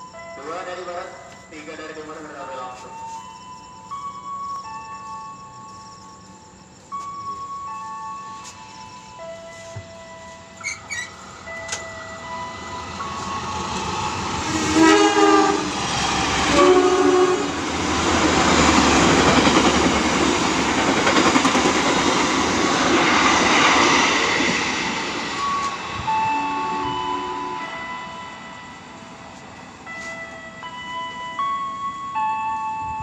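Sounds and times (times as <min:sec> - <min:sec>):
train wheels rumbling: 0:03.8 - 0:32.1
train horn blasts: 0:13.1 - 0:18.0, 0:25.6 - 0:27.9.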